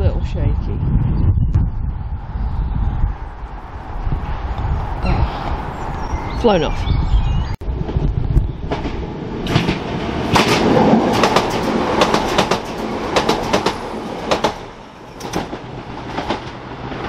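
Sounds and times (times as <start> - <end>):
train rumble: 7.6 - 17.0
train wheels clicking over rail joints: 8.7 - 17.0.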